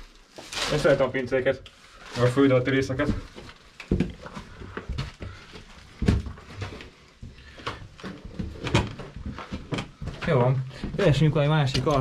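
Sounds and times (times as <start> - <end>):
knocks scuffs and thumps: 2.9 - 11.1.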